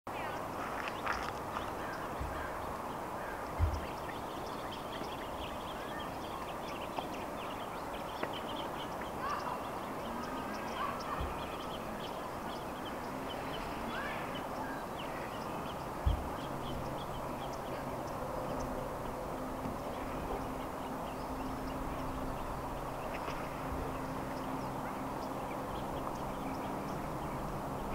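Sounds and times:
outdoor background rush: 0:00.1 - 0:27.9
dull low thumps: 0:03.5 - 0:04.1, 0:16.0 - 0:17.3.

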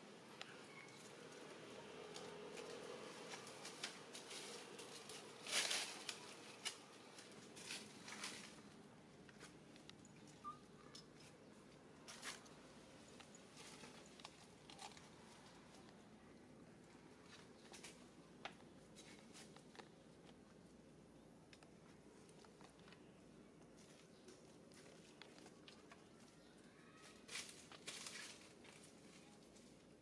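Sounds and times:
dry leaves rustling and crackling: 0:00.7 - 0:08.8, 0:23.8 - 0:29.9.

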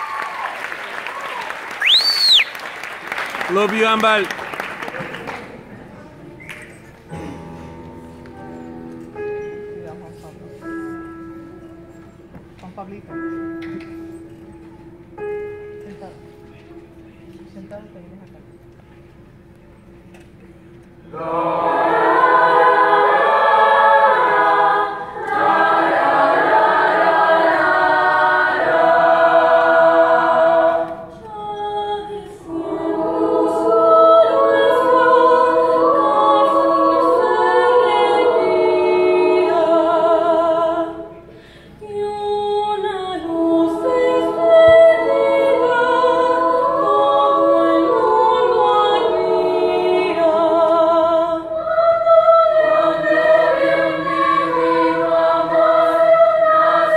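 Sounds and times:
mixed choir singing: 0:21.0 - 0:56.9.

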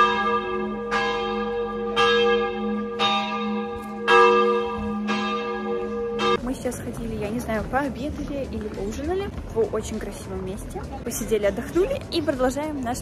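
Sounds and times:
church bell tolling: 0:00.0 - 0:06.6.

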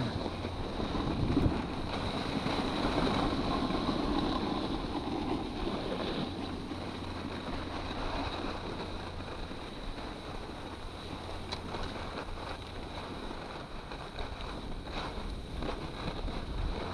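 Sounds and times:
skis gliding over packed snow: 0:00.0 - 0:16.9
wind rushing over microphone: 0:00.0 - 0:16.9.

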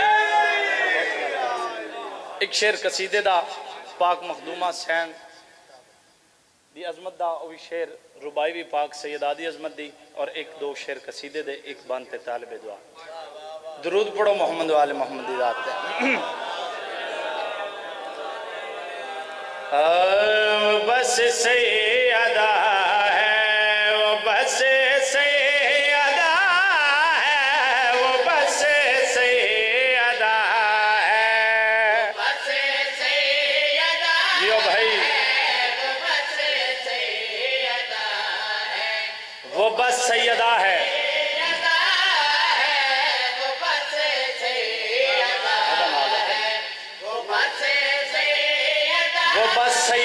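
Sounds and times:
man singing through a microphone: 0:19.7 - 0:50.0.

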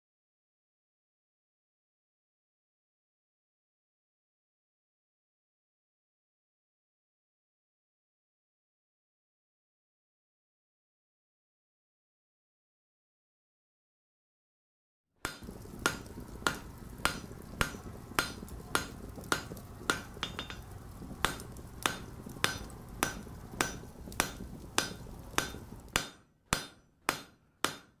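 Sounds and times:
low steady rumble: 0:15.3 - 0:26.1
hammer striking anvil: 0:15.3 - 0:28.0.

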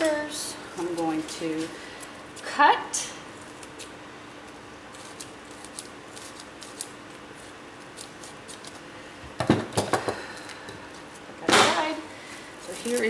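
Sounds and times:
scissors snipping cling wrap: 0:12.6 - 0:13.0.

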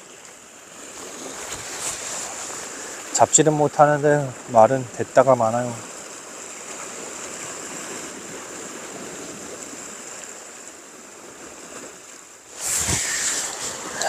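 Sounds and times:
surf washing against rocks: 0:00.0 - 0:14.0.

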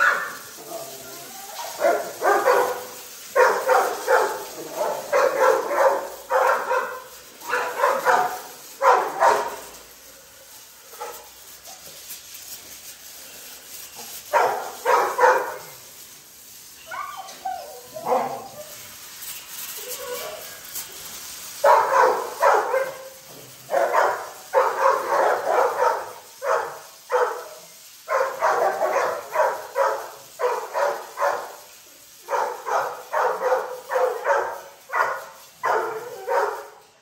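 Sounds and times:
hose spraying water: 0:00.0 - 0:37.0
dogs barking: 0:01.6 - 0:09.8, 0:14.2 - 0:15.8, 0:16.9 - 0:18.8, 0:21.6 - 0:36.8.

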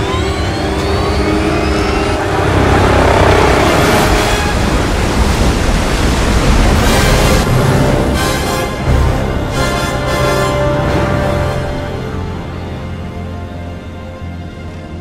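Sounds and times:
rising tones: 0:00.0 - 0:05.9
engine-like noise: 0:00.0 - 0:15.0.

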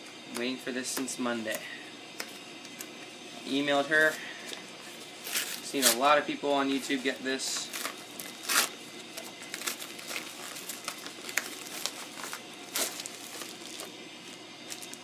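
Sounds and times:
packaging rustling and crinkling: 0:04.0 - 0:06.1, 0:06.7 - 0:15.0
loud packaging crackles: 0:05.2 - 0:06.1, 0:07.6 - 0:15.0.

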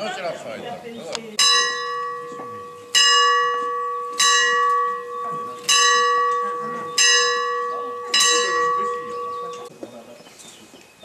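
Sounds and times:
church bell ringing: 0:01.4 - 0:09.7.

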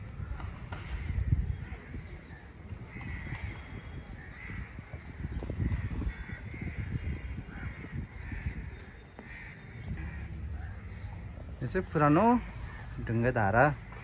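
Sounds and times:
crows cawing: 0:02.9 - 0:05.0, 0:05.6 - 0:11.1.

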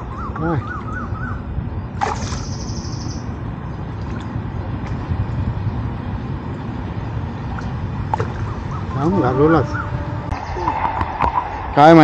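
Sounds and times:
birds chirping and trilling: 0:00.0 - 0:03.9, 0:08.0 - 0:12.0
steady low rumble: 0:00.0 - 0:12.0.

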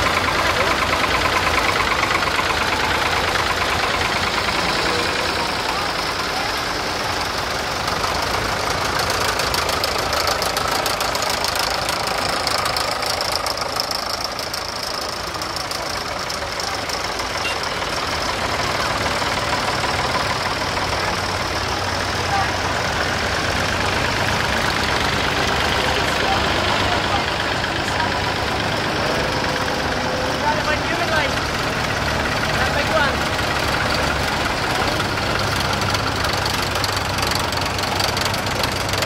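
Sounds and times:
tractor engines clattering: 0:00.0 - 0:39.0.

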